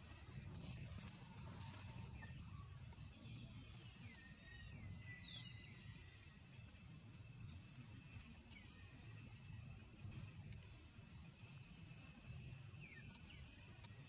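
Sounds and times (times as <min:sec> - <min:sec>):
faint high chirping calls: 0:01.7 - 0:09.6.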